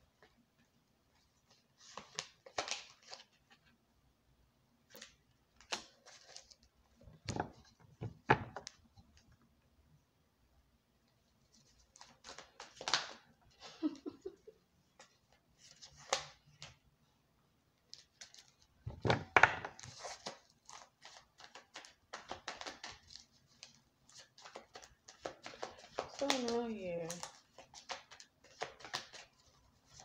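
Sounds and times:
cards being shuffled: 1.5 - 3.6, 11.6 - 13.3, 17.9 - 30.0.

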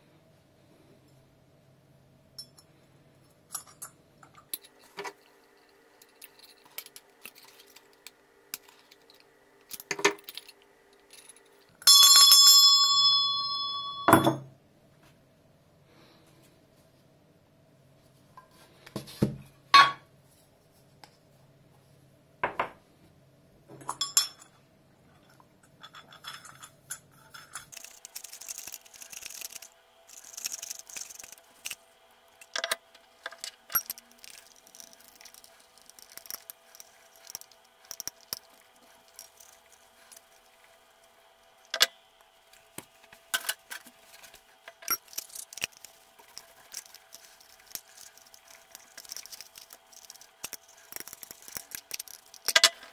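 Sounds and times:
metallic clinks of hand bell: 11.9 - 14.3.

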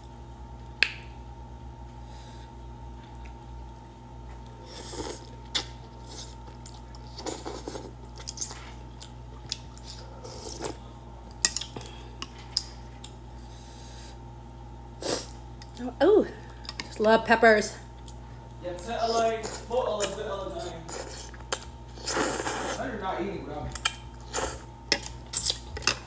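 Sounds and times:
chewing: 4.3 - 13.2
slurping noodles: 22.0 - 22.8.

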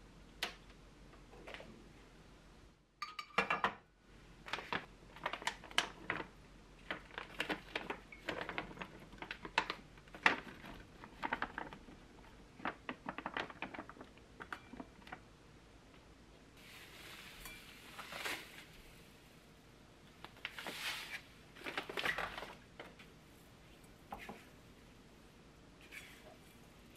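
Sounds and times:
pot clattering on stove grate: 3.0 - 3.8.

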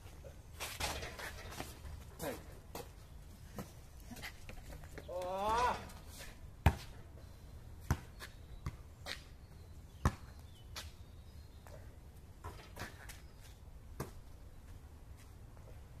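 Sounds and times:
basketball bouncing on asphalt: 6.6 - 7.0, 7.8 - 10.9, 13.9 - 14.4.

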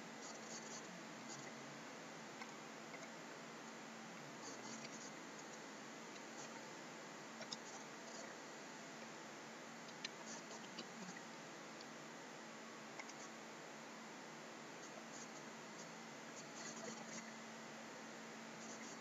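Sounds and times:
faint hum: 0.0 - 19.0.

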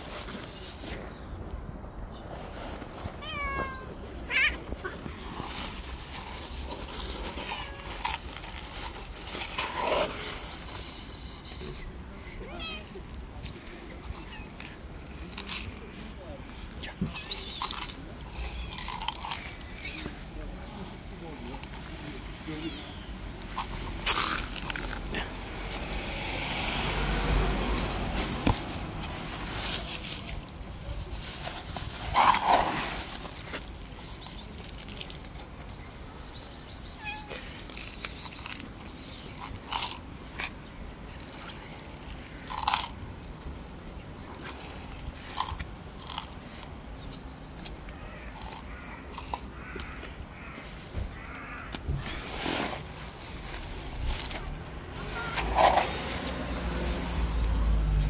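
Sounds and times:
cats meowing: 3.1 - 5.1, 7.3 - 8.2, 12.4 - 13.0, 13.9 - 14.9, 36.7 - 38.6
car passing: 23.8 - 29.7, 54.6 - 58.0.

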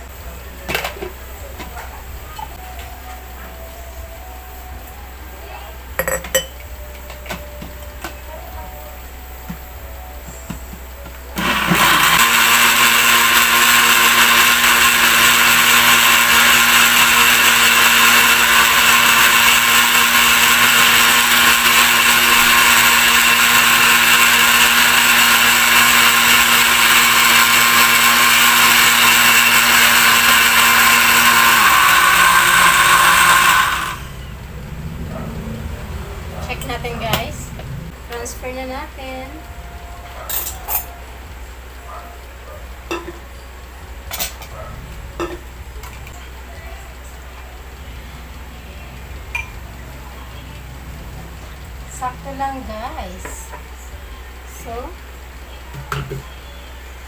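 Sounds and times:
blender running: 11.4 - 34.2.

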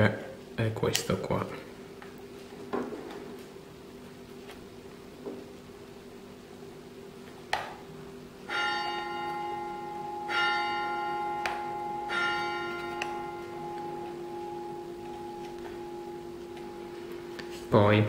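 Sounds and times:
bell ringing: 8.5 - 17.2.

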